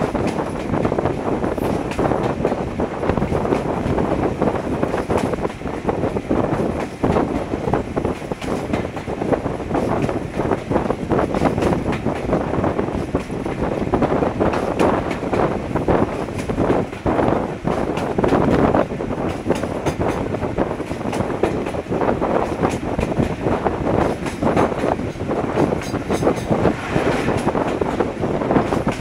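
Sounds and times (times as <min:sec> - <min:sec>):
wind buffeting microphone: 0:00.0 - 0:29.0
diesel locomotive engine running: 0:11.8 - 0:29.0.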